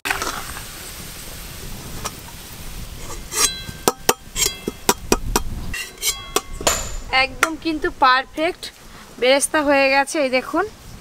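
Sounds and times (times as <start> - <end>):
onions sizzling in oil: 0.0 - 11.0
metal ladle clinking on wok: 3.3 - 7.6.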